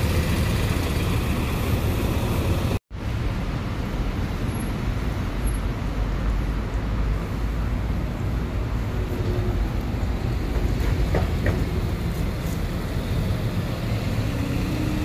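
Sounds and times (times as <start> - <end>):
bus approaching: 0.0 - 15.0
bus engine low rumble: 0.0 - 15.0
street traffic noise: 0.0 - 15.0.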